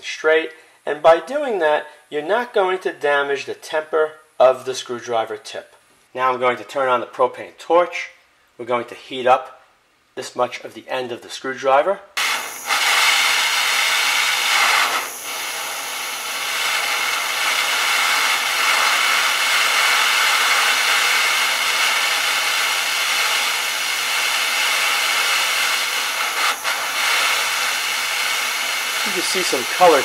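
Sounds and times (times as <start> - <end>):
propane torch hissing: 12.2 - 30.0.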